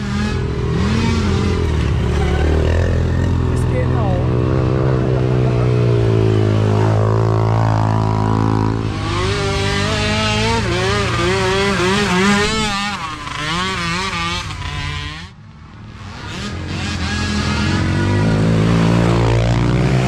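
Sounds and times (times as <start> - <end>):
engine revving up and down: 0.0 - 20.0
small engines droning: 0.0 - 20.0.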